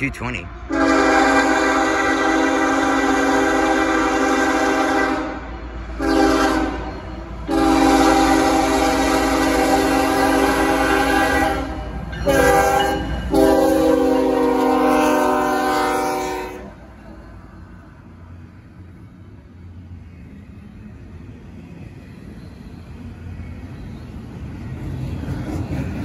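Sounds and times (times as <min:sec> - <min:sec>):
train rumbling past: 0:00.0 - 0:26.0
locomotive air horn: 0:00.7 - 0:06.9, 0:07.5 - 0:16.8.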